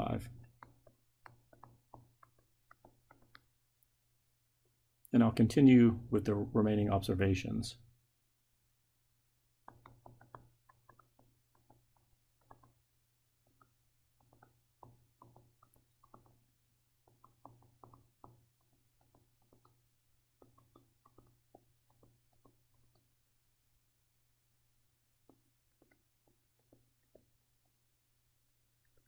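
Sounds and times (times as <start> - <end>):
stylus tapping on tablet screen: 0.0 - 4.0, 9.4 - 23.6, 24.8 - 29.0.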